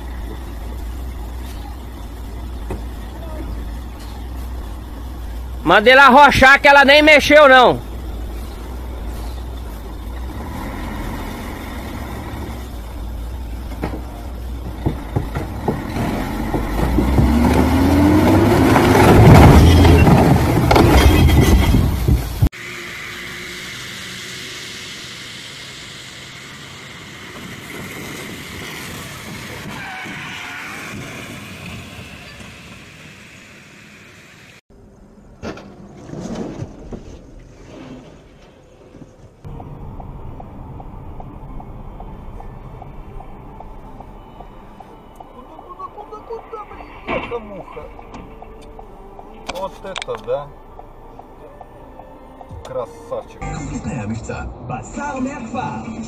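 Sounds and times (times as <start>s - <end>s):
diesel truck engine labouring: 0.0s - 35.9s.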